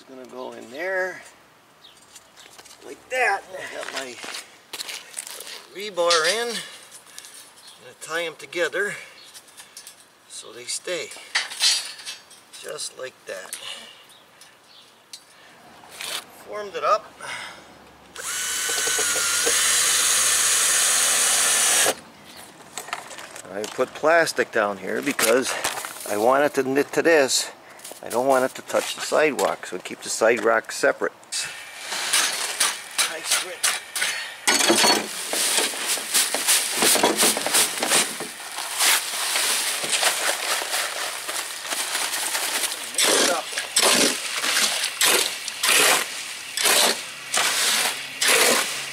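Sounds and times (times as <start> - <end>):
power drill into wood: 18.2 - 22.0, 45.0 - 48.8
paper sack rustling: 35.1 - 48.8.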